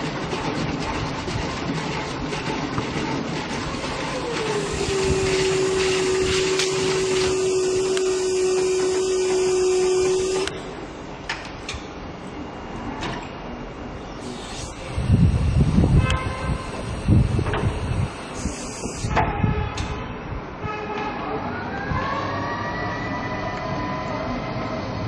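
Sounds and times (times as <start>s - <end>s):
continuous rushing noise: 0.0s - 25.0s
electric motor whining: 4.1s - 10.6s, 14.3s - 19.1s.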